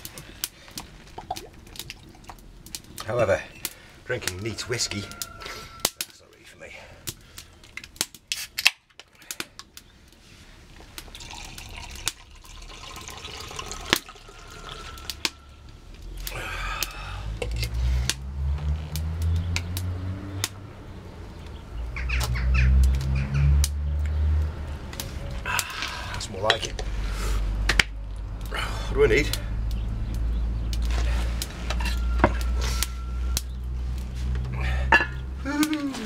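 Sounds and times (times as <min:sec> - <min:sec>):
drink pouring into glass: 0:11.1 - 0:15.2.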